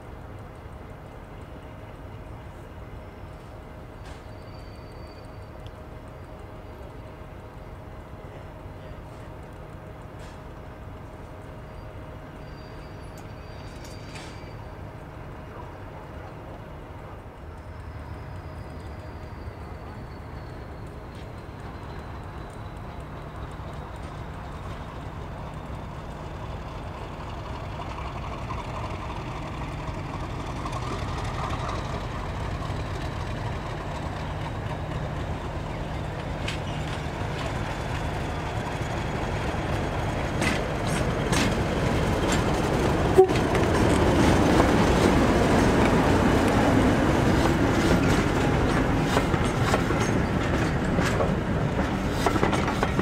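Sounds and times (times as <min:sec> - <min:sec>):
diesel train engine: 0:00.0 - 0:53.0
wheels clicking over rail joints: 0:12.3 - 0:53.0.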